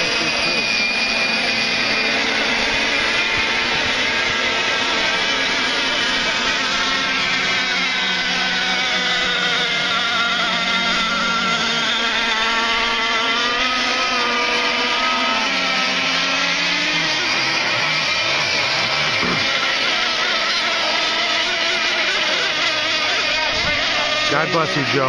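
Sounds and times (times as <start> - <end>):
model boat engines whining: 0.0 - 25.0.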